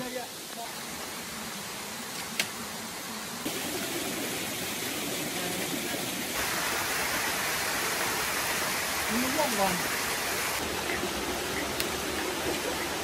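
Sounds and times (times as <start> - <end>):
waterfall over rocks: 3.5 - 13.0.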